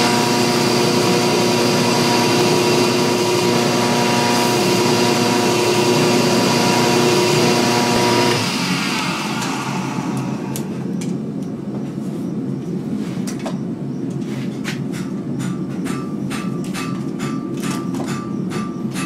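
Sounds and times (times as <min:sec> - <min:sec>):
belt grinder humming: 0:00.0 - 0:10.8.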